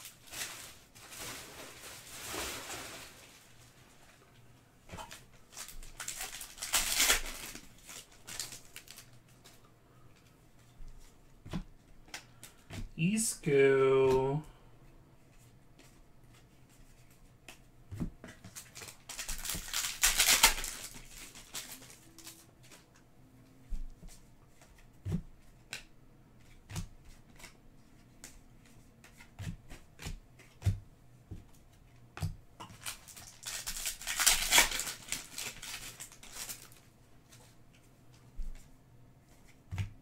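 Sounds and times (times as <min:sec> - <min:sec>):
papery rustling: 0:00.0 - 0:04.2.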